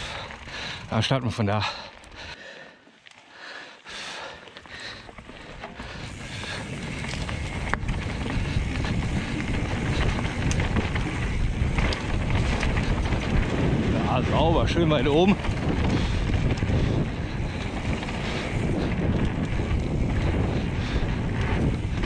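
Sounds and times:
bike tyres on dirt: 0.0s - 22.0s
sharp clicks from bike: 4.3s - 22.0s
wind buffeting microphone: 4.7s - 22.0s.

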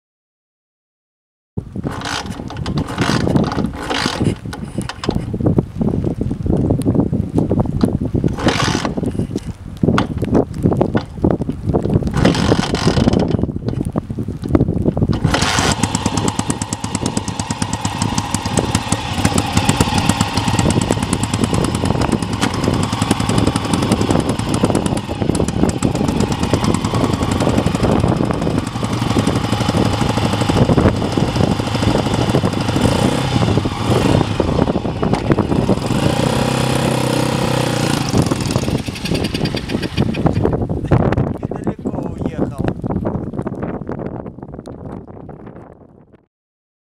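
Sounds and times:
motorcycle engine idling: 15.3s - 35.9s, 36.5s - 40.4s.

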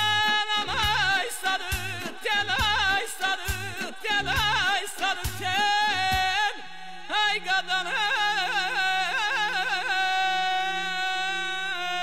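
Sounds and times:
drum beats: 0.0s - 6.4s
instrumental backing: 0.0s - 6.8s
man singing with warbling trills: 0.0s - 12.0s.

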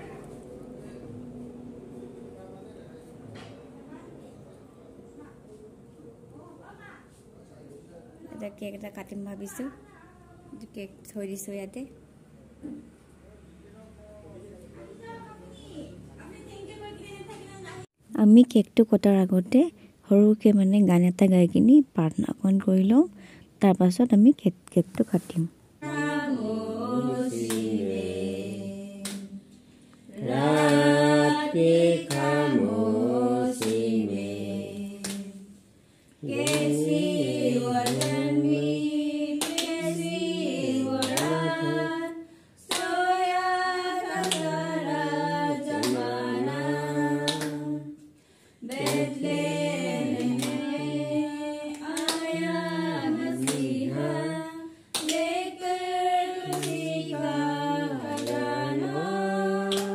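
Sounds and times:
women singing a hymn: 25.8s - 59.9s.

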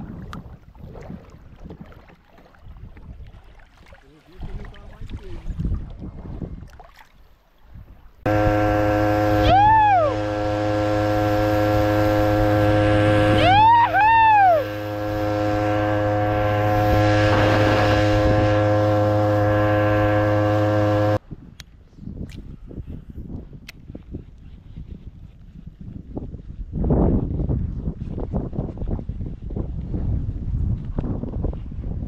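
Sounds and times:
motor whine: 8.3s - 21.2s
outboard motor running: 8.3s - 21.2s.

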